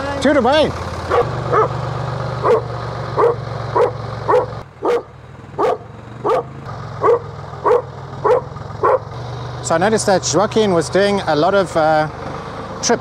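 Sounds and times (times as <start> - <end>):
dog barking: 1.1 - 1.8, 2.4 - 9.1.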